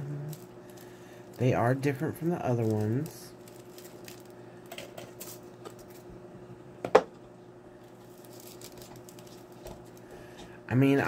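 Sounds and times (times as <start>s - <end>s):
faint hum: 0.0s - 11.0s
foil and plastic crinkling: 0.2s - 6.0s, 7.8s - 10.2s.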